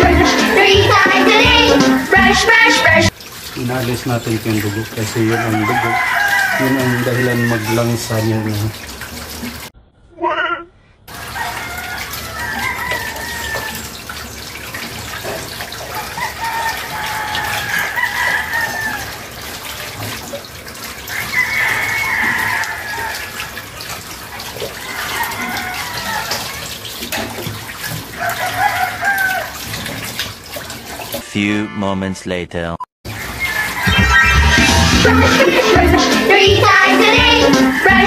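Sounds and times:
water running from tap: 0.0s - 9.7s, 11.1s - 31.2s, 33.1s - 38.0s
rooster crowing: 5.1s - 8.6s, 11.1s - 14.0s, 15.9s - 19.3s, 21.1s - 23.5s, 24.7s - 26.6s, 28.2s - 29.6s, 33.2s - 34.8s, 37.5s - 38.0s.

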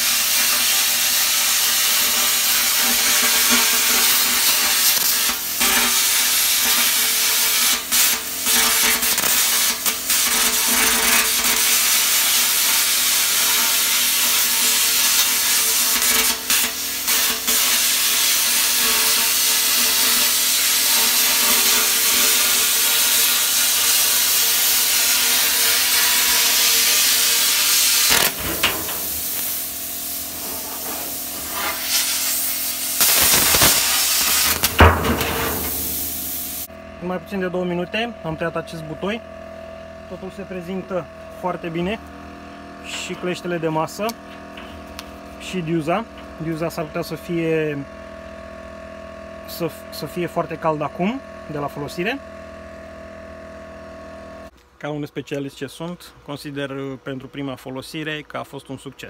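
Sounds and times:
plasma cutter hissing: 0.0s - 36.7s.

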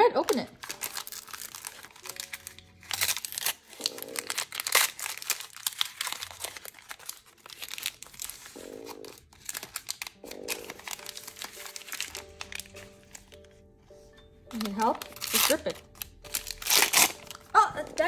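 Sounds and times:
plastic packaging crinkling: 0.2s - 18.0s.

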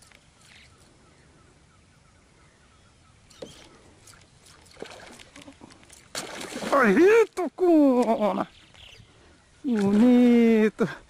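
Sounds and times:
lure splashing on water: 3.3s - 8.2s, 9.7s - 10.4s
fish striking with splash: 6.1s - 6.8s.

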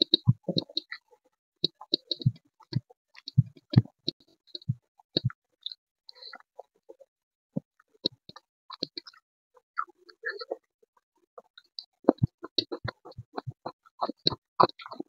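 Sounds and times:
wet chewing and lip smacking: 11.4s - 15.0s.

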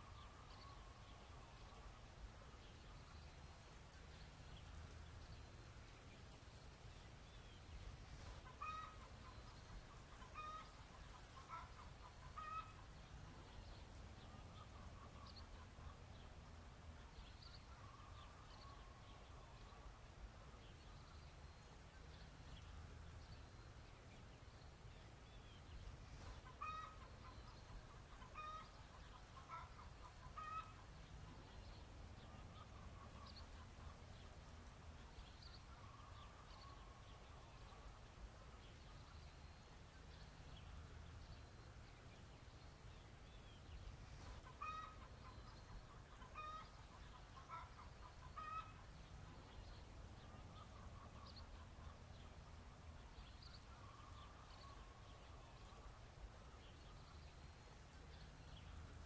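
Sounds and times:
faint chickens clucking: 8.2s - 20.8s, 25.8s - 40.8s, 44.0s - 52.4s.

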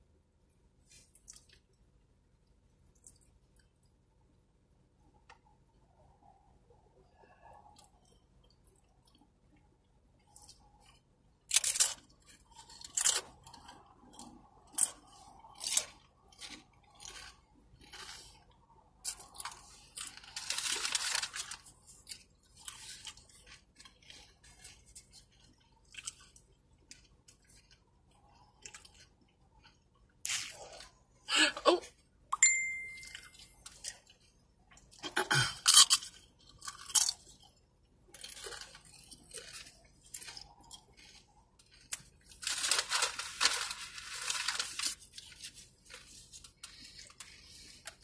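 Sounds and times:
chips being chewed: 10.2s - 31.0s, 32.8s - 48.0s.

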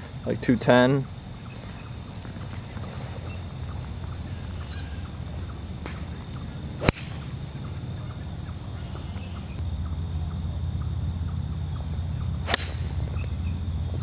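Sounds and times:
low background rumble: 0.0s - 14.0s
golf club striking ball: 5.8s - 7.4s, 12.2s - 13.6s.

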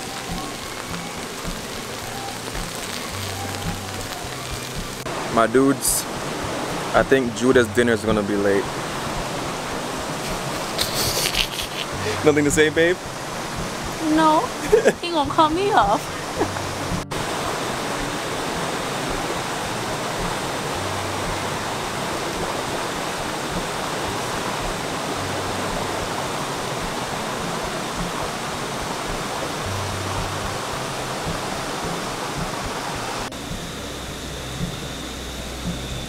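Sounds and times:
river flowing over rocks: 0.0s - 36.0s.

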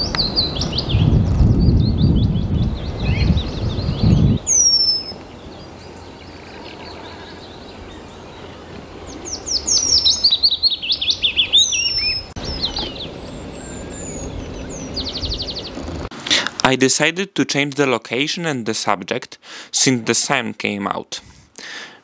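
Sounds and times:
bird calling high falling whistles: 0.0s - 15.8s
songbird singing fast run of notes: 0.0s - 16.1s
low rumble: 12.2s - 16.1s.

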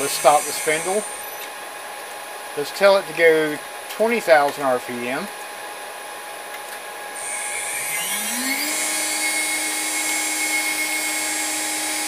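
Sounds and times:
router spindle whine: 0.0s - 2.0s, 7.1s - 12.0s.

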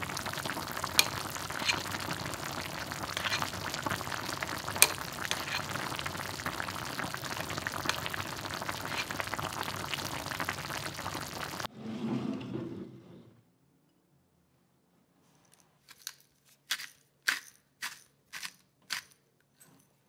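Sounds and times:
sauce bubbling and crackling: 0.0s - 11.7s.

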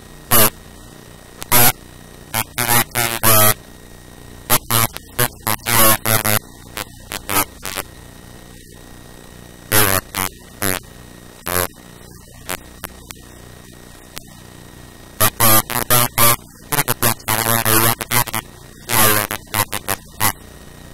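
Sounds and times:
electrical mains hum: 0.0s - 20.9s
static hiss: 0.0s - 20.9s
distorted voice bursts: 0.3s - 0.6s, 1.4s - 3.6s, 4.5s - 7.9s, 9.7s - 13.2s, 15.2s - 20.4s.

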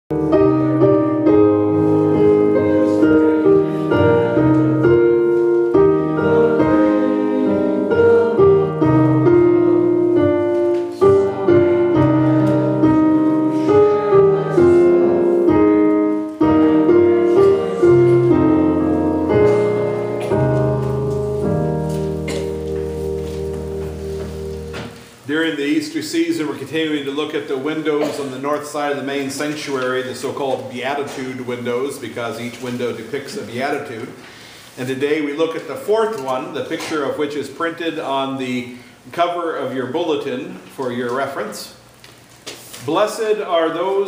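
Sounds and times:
piano music: 0.1s - 29.2s.

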